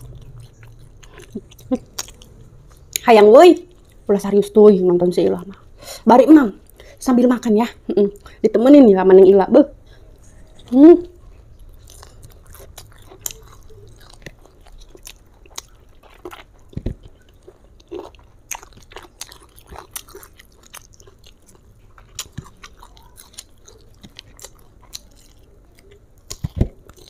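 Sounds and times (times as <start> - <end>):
chewing and biting fried chicken: 0.0 - 4.1, 10.2 - 27.0.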